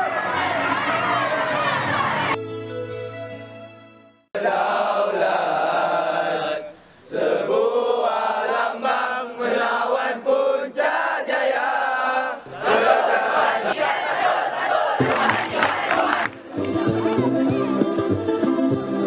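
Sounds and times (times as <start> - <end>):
music: 2.1 - 4.4, 15.0 - 19.0
boys singing in unison: 4.4 - 17.0.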